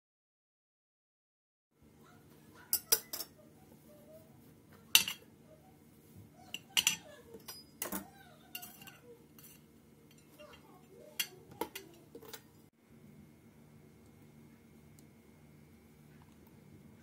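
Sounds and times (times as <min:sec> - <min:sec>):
knife clinking on ceramic plates: 0:02.7 - 0:03.4, 0:04.9 - 0:05.3, 0:06.5 - 0:12.5.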